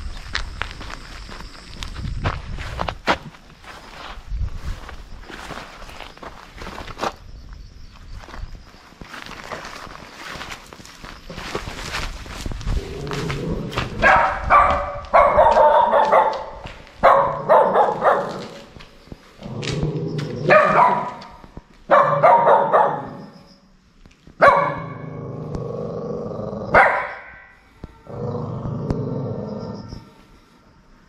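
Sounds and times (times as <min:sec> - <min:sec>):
dog barking and growling: 0:12.8 - 0:18.8, 0:19.4 - 0:23.4, 0:24.4 - 0:27.5, 0:28.1 - 0:30.0.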